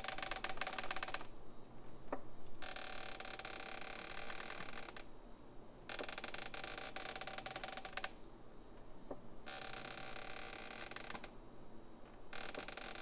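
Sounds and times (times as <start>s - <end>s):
rocking chair creaking: 0.0s - 1.3s, 2.6s - 5.1s, 5.9s - 8.2s, 9.5s - 11.3s, 12.3s - 13.0s.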